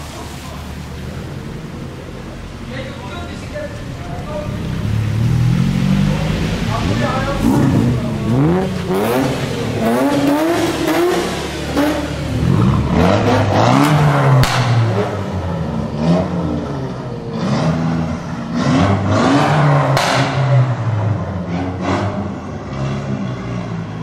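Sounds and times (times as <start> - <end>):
exhaust cracks: 0.0 - 16.5
car engines revving: 0.0 - 24.0.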